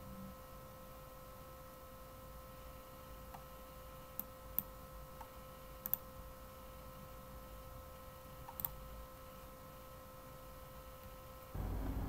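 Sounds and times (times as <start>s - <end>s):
faint electrical whine: 0.0s - 12.0s
mouse and keyboard clicks: 8.5s - 8.8s.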